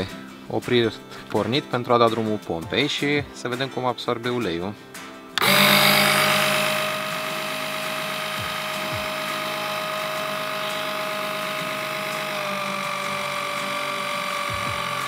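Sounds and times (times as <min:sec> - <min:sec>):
electric oil pump motor whining: 0:05.4 - 0:15.0.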